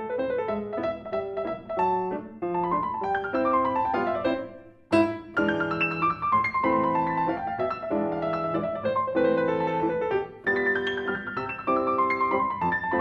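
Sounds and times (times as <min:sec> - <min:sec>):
grand piano repeated chords: 0:00.0 - 0:13.0.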